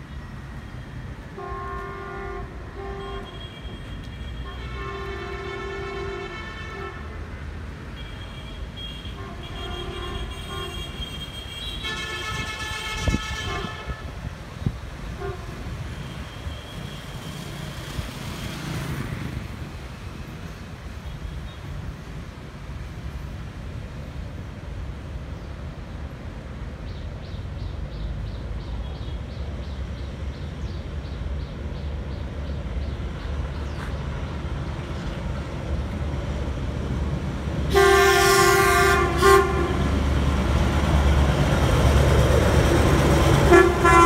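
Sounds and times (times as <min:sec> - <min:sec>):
street traffic noise: 0:00.0 - 0:44.0
locomotive horn blasts: 0:01.3 - 0:07.4, 0:08.0 - 0:14.4, 0:15.1 - 0:17.3, 0:37.7 - 0:40.1, 0:43.4 - 0:44.0.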